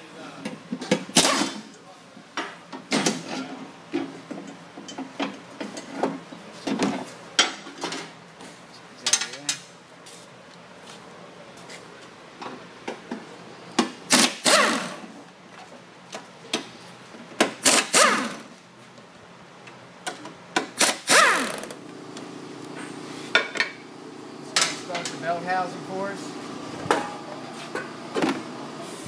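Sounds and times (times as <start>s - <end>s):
pneumatic impact wrench hammering: 0.8s - 1.7s, 13.8s - 15.2s, 17.4s - 18.6s, 20.0s - 23.8s.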